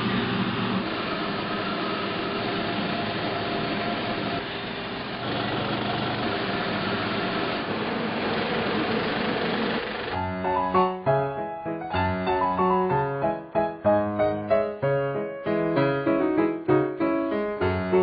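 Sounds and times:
film projector whirring: 0.0s - 10.2s
piano music: 10.1s - 18.0s.

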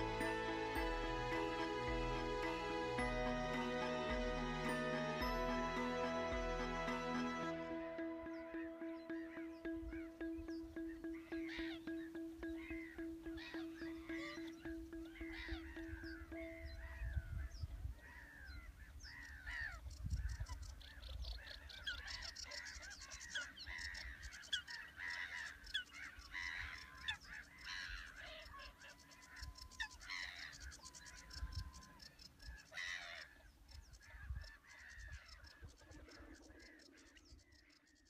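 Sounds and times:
flock of birds squawking: 21.4s - 30.7s.

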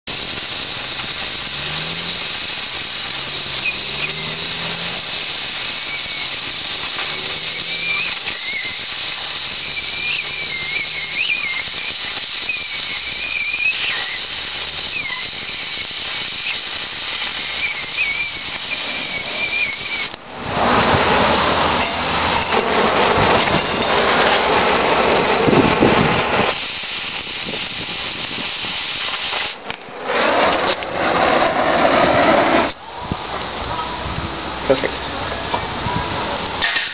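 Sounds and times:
cutting torch hissing: 0.0s - 36.9s
faint wavering whistle: 0.9s - 20.2s.

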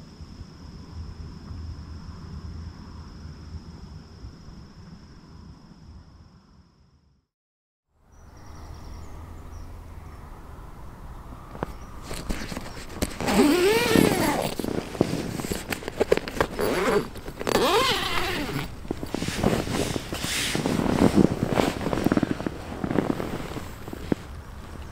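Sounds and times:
tent door zip pulled open: 12.0s - 24.3s
nylon fabric rustling: 12.0s - 24.9s.

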